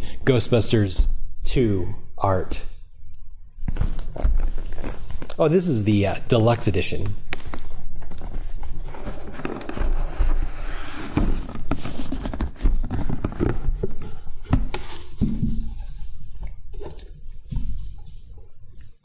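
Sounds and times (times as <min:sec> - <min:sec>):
cardboard lid scraping and rustling: 0:08.1 - 0:18.0.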